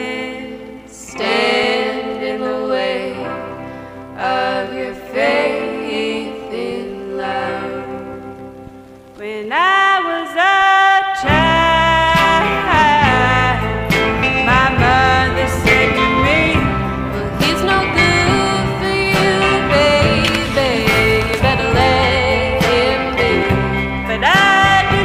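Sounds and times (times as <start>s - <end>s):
song with sung melody: 0.0s - 25.0s
deep bass: 11.3s - 25.0s.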